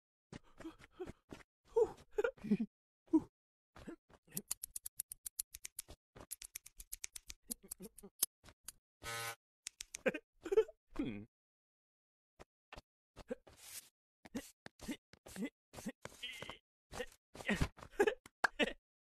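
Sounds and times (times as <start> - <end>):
scissors snipping: 4.3 - 8.8, 9.7 - 10.1
brief buzz: 9.0 - 9.4.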